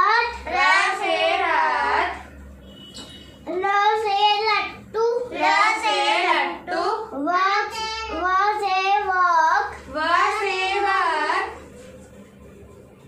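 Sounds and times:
girl chanting sing-song: 0:00.0 - 0:02.2, 0:05.0 - 0:11.6.

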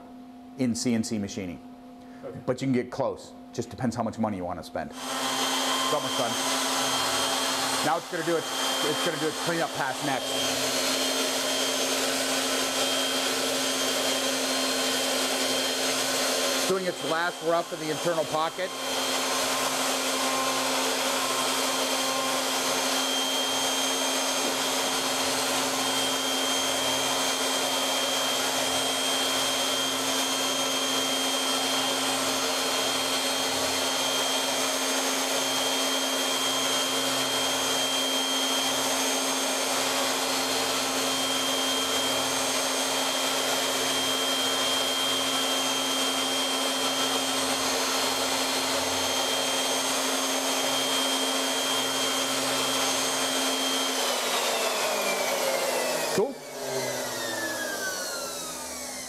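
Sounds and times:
end mill cutting wood: 0:05.0 - 0:59.0
router spindle whining: 0:05.0 - 0:59.0.

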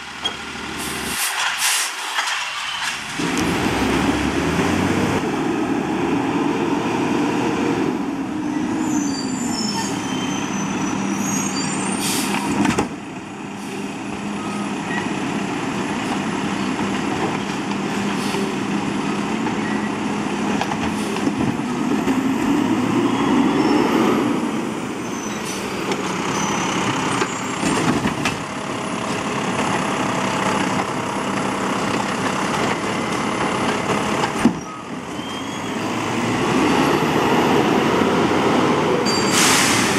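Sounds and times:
air brakes hissing: 0:00.8 - 0:02.8, 0:08.8 - 0:12.6, 0:39.1 - 0:39.9
diesel engine revving: 0:03.0 - 0:12.6, 0:13.2 - 0:39.9.

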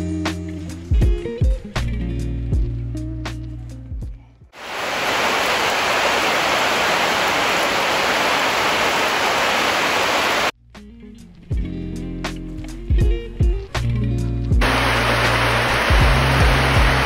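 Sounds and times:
steady rain: 0:04.6 - 0:10.5, 0:14.6 - 0:17.0.

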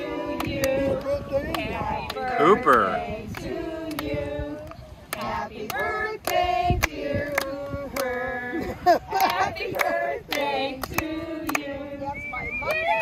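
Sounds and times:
group singing: 0:00.0 - 0:12.3
hand claps: 0:00.3 - 0:08.2, 0:09.1 - 0:11.7.

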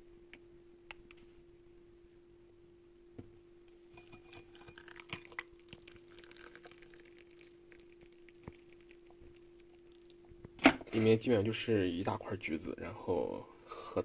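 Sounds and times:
tea cup clinking: 0:03.8 - 0:07.9.

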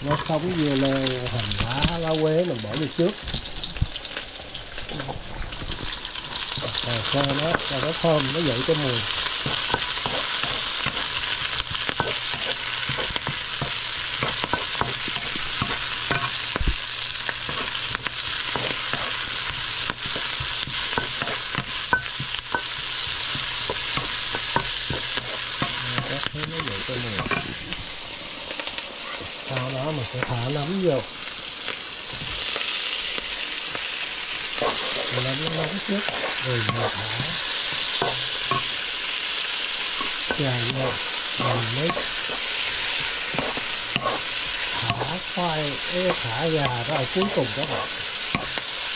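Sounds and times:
food sizzling in a pan: 0:00.0 - 0:48.9
spatula scraping a pan: 0:05.8 - 0:27.8, 0:34.4 - 0:48.9.

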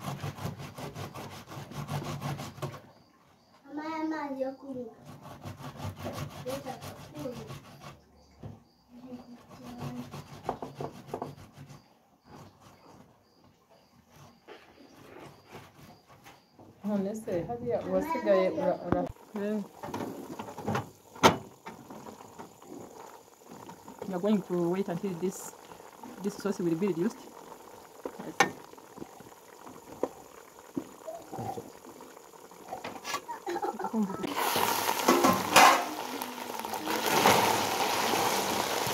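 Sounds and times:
tomatoes scraping on a grater: 0:00.0 - 0:02.8, 0:05.0 - 0:08.0, 0:09.2 - 0:12.8
sauce bubbling in a pot: 0:17.8 - 0:38.9.

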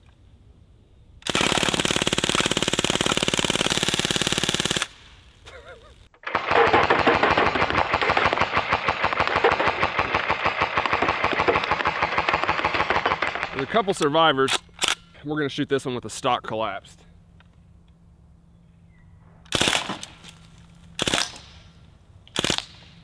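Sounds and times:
bb gun firing full auto: 0:01.2 - 0:05.1, 0:06.2 - 0:13.6, 0:19.5 - 0:20.2, 0:21.0 - 0:21.6, 0:22.3 - 0:23.0.

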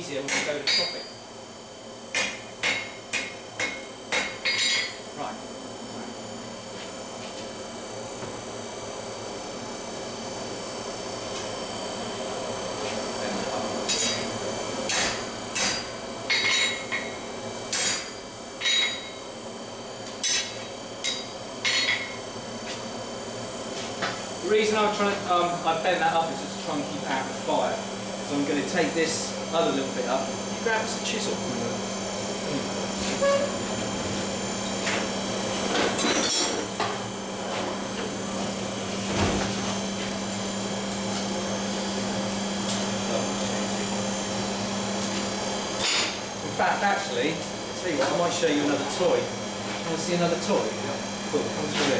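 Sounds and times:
steady hum: 0:00.0 - 0:51.9
hammer striking steel on anvil: 0:00.3 - 0:01.0, 0:02.1 - 0:04.9, 0:14.9 - 0:17.1.

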